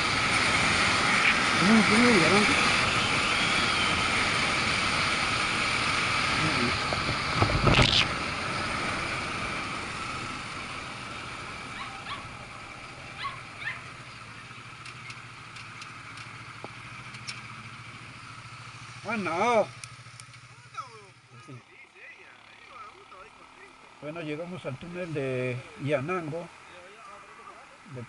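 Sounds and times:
motorcycle engine running: 0:00.0 - 0:28.0
wind rushing over microphone: 0:06.7 - 0:08.2
faint clicks: 0:14.8 - 0:17.4.

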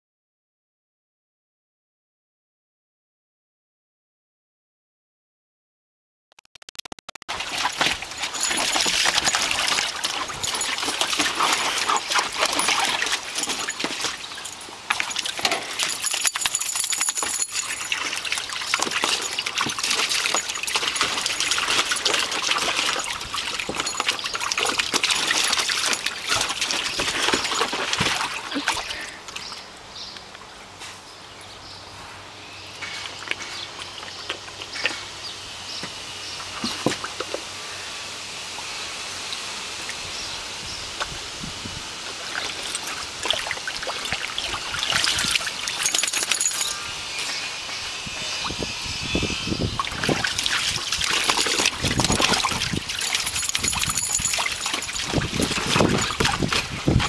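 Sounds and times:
puppy splashing in water: 0:07.3 - 0:29.4, 0:42.1 - 0:46.8, 0:49.8 - 0:57.0
water drips: 0:07.4 - 0:29.4, 0:49.8 - 0:56.6.

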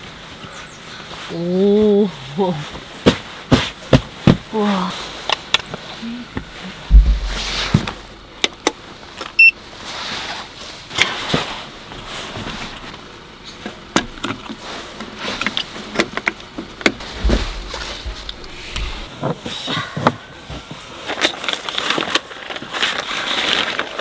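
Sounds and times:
knocks clicks and rustles: 0:06.4 - 0:09.4, 0:13.6 - 0:24.0
low thud: 0:06.9 - 0:08.3, 0:17.0 - 0:19.1
short electronic beep: 0:09.4 - 0:09.6.

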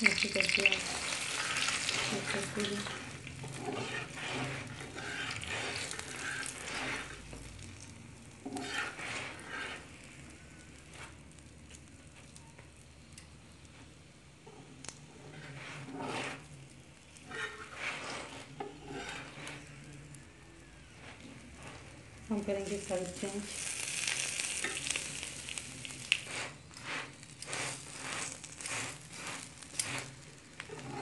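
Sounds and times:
flatbread sizzling in a pan: 0:00.0 - 0:31.0
fork scraping a pan: 0:00.1 - 0:07.6, 0:08.4 - 0:10.1, 0:15.1 - 0:16.5, 0:17.2 - 0:19.9, 0:24.2 - 0:25.0, 0:26.1 - 0:31.0.

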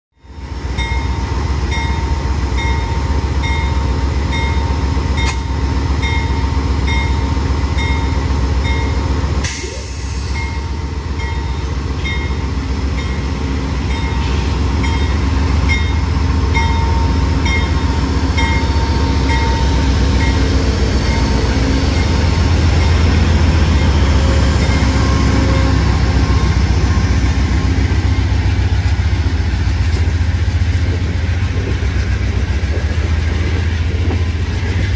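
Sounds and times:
diesel locomotive engine drone: 0:00.1 - 0:34.9
locomotive bell ringing: 0:00.2 - 0:09.1, 0:10.3 - 0:28.5.

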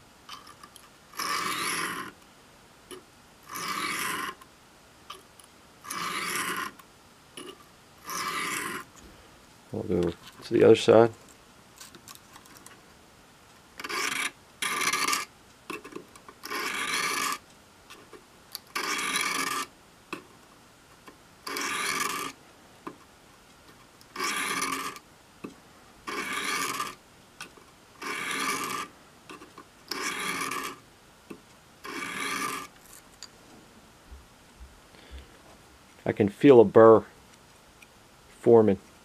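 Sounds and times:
knife scraping on sharpening stone: 0:16.4 - 0:17.4, 0:21.5 - 0:22.3, 0:26.1 - 0:27.0.

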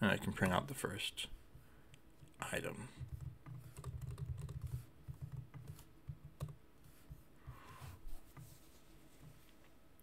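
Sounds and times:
typing on keyboard: 0:03.0 - 0:06.6.

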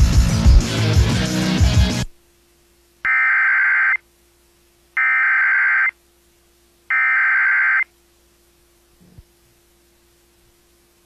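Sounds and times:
fast two-pitch data tones: 0:03.1 - 0:04.0, 0:05.0 - 0:05.9, 0:06.9 - 0:07.9.

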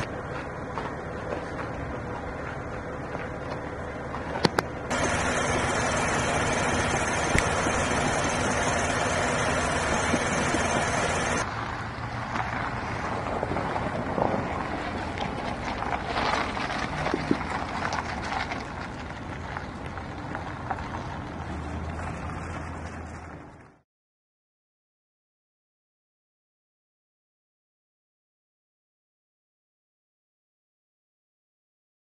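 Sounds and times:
vehicle engine running: 0:00.0 - 0:23.8.

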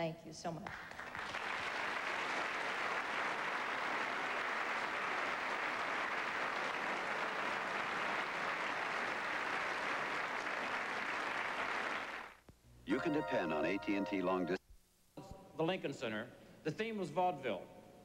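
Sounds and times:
audience applauding: 0:00.7 - 0:12.4.

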